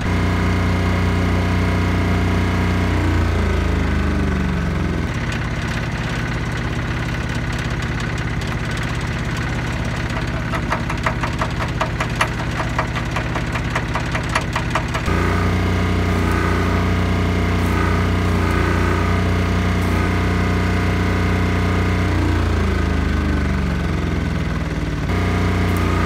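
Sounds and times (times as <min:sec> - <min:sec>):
small engine running: 0:00.0 - 0:26.0
welding arc crackling: 0:12.4 - 0:21.0, 0:25.1 - 0:26.0.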